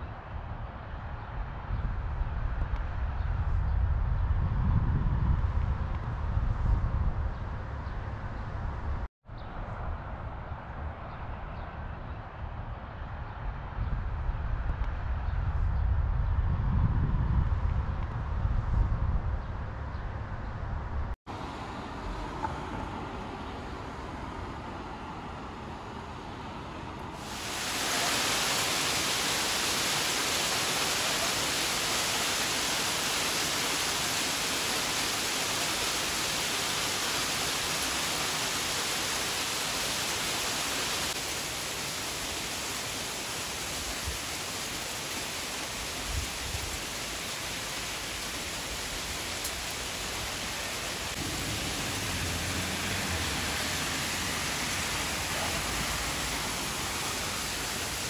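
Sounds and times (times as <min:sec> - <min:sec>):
heavy rain and hail: 0:27.2 - 0:58.0.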